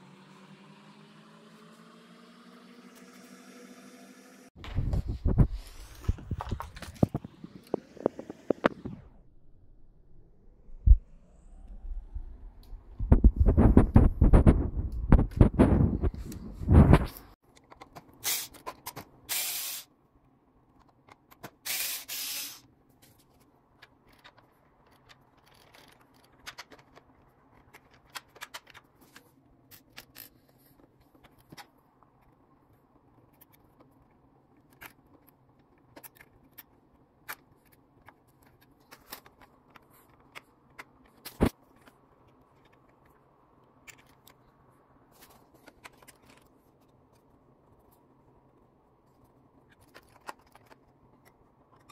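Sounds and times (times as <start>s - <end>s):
plastic parts clicking and rubbing: 13.0s - 19.8s, 20.6s - 51.9s
hissing bursts of blown air: 19.3s - 19.9s, 21.7s - 22.6s.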